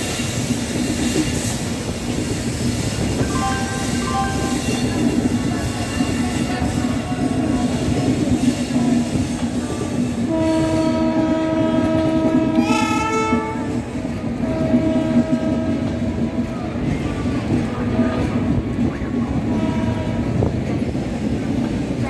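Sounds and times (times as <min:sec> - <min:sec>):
train wheels rumbling over track: 0:00.0 - 0:22.0
train horn: 0:03.3 - 0:05.1, 0:09.8 - 0:16.2, 0:19.4 - 0:20.5.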